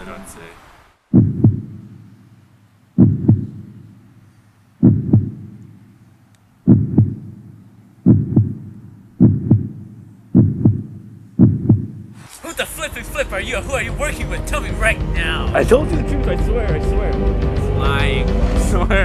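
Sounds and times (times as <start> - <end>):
heartbeat thumps: 1.1 - 2.1, 3.0 - 4.0, 4.8 - 5.6, 6.6 - 12.2.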